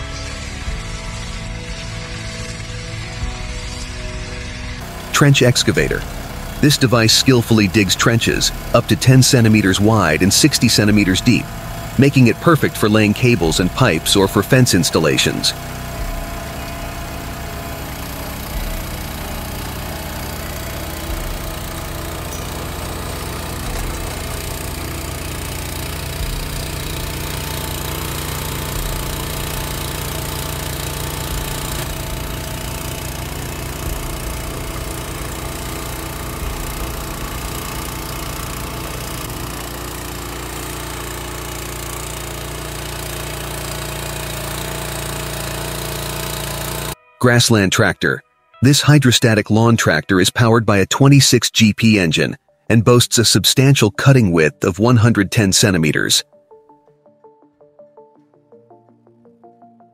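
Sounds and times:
small engine running: 0.0 - 48.0
digging chain cutting soil: 4.8 - 47.7.

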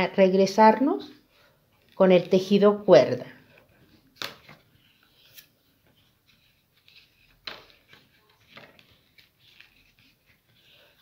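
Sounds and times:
paper tubes rustling and scraping: 3.4 - 11.0.

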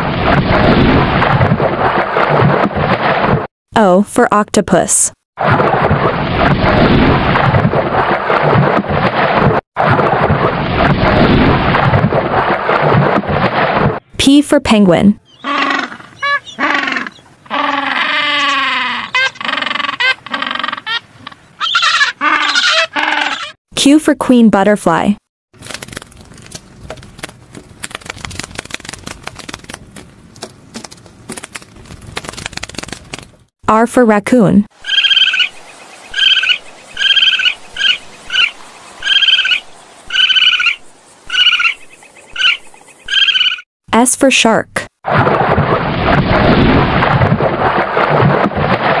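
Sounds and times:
penguin calls: 15.4 - 23.6
raccoon cries: 21.6 - 23.6, 36.2 - 41.8, 42.4 - 43.6.

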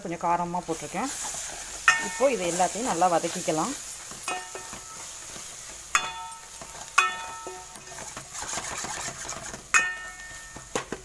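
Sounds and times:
food sizzling: 0.0 - 11.0
ladle clinking on pan rim: 1.8 - 5.1, 5.9 - 8.2
ladle scraping a steel pan: 6.0 - 10.5.

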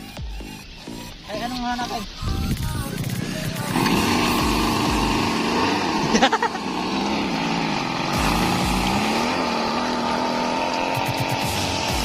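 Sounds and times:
small gasoline engine running: 2.8 - 12.0.

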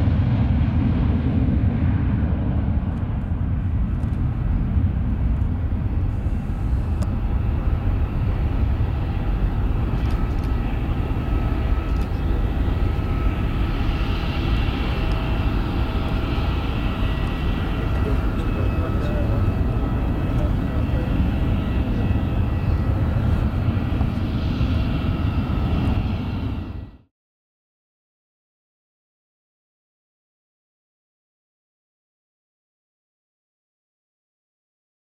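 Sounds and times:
jet engine rumble: 0.0 - 27.1
jet engine whine: 0.0 - 27.1.

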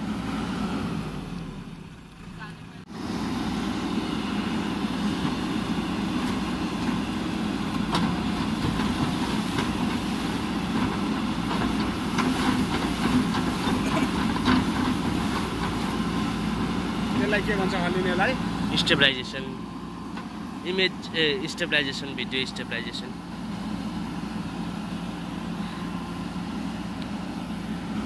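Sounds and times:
diesel engine running: 0.0 - 28.0.

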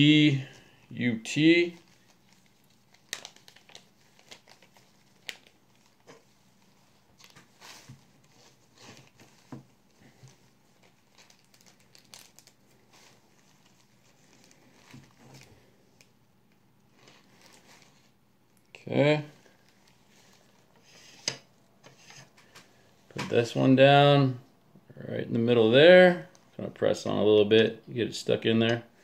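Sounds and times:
plastic packet crinkling: 1.6 - 7.6, 10.2 - 16.1.

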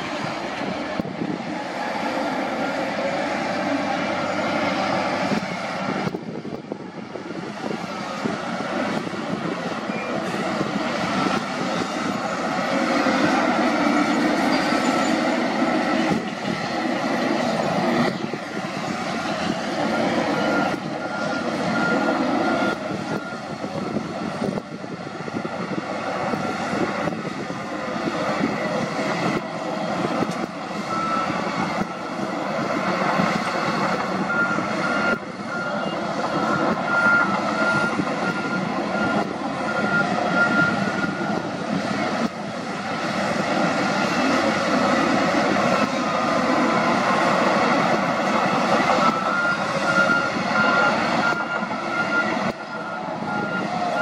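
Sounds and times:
diesel engines of heavy machinery: 0.0 - 54.0
reversing alarm beeping: 9.8 - 16.6, 19.0 - 23.6, 30.8 - 32.2, 33.3 - 42.1, 48.2 - 54.0.

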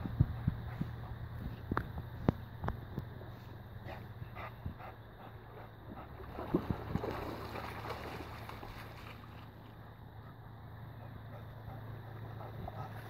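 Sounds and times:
wind rumbling on microphone: 0.0 - 5.0, 5.8 - 9.5
water lapping: 3.2 - 10.4, 11.0 - 13.0.

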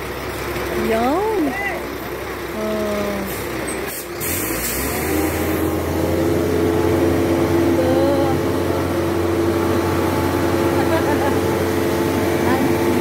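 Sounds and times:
concrete mixer truck humming: 0.0 - 13.0.

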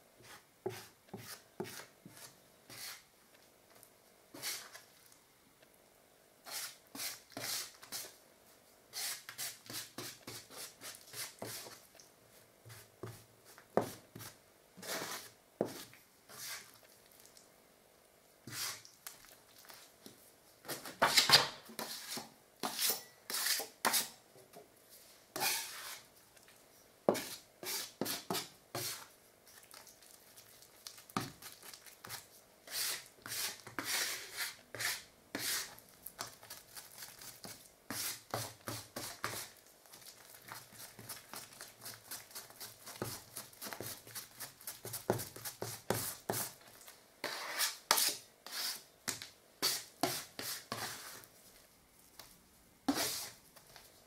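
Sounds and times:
metal knife scraping on board: 21.0 - 24.1, 25.4 - 26.0, 47.2 - 48.8.

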